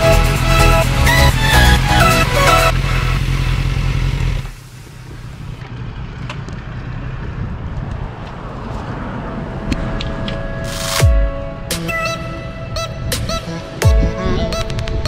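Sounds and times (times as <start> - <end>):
motorcycle engine rumble: 0.0 - 10.6
wind rushing over microphone: 7.0 - 10.3.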